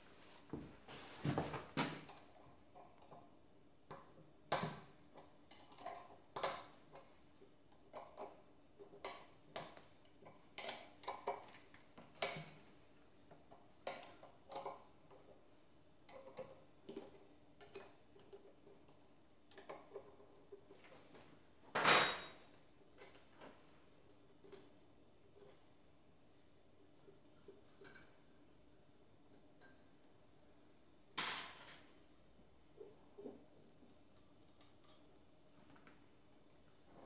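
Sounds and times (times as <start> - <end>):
metallic clicks and clinks of tools: 27.3 - 28.2.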